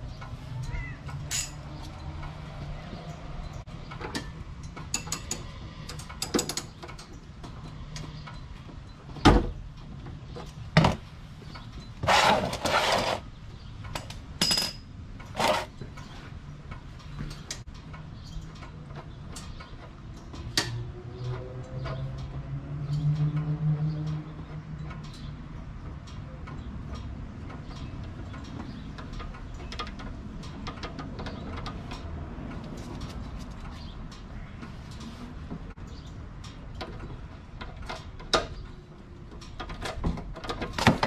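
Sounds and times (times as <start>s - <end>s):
metal clinks and knocks: 0.2s - 11.0s, 13.9s - 16.1s.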